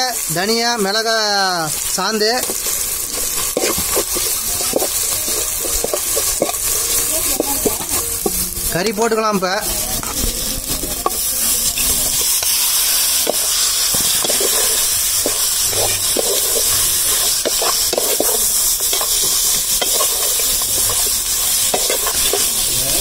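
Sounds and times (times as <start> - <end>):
food sizzling in a pot: 0.0 - 23.0
metal spoon scraping a pot: 2.4 - 8.4, 11.0 - 23.0.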